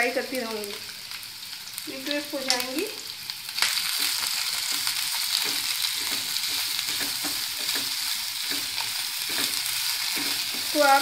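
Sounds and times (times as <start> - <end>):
vegetables sizzling in hot oil: 0.0 - 11.0
spatula stirring: 3.8 - 11.0.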